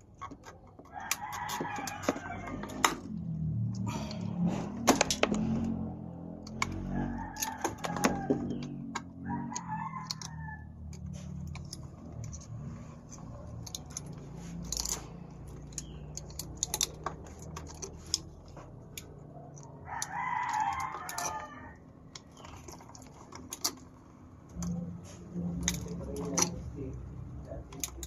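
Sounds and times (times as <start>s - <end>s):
pliers clicking on wires: 0.1s - 4.2s, 4.8s - 23.9s, 24.5s - 28.0s
rooster crowing: 0.9s - 2.9s, 6.7s - 10.9s, 19.8s - 21.8s.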